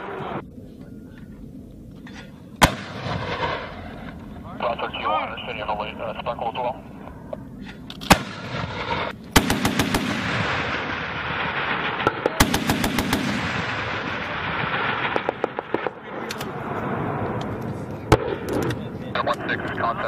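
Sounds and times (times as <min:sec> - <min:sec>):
sharp gunshot cracks: 0:02.6 - 0:03.7, 0:08.0 - 0:16.5
rolling gunshot echo: 0:02.6 - 0:04.2, 0:08.0 - 0:16.6
automatic gunfire bursts: 0:09.4 - 0:10.5, 0:12.4 - 0:13.6.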